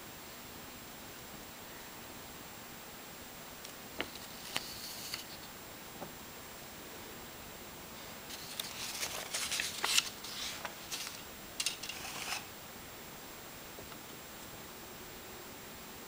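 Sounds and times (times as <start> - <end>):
paper rustling and crinkling: 8.0 - 12.5.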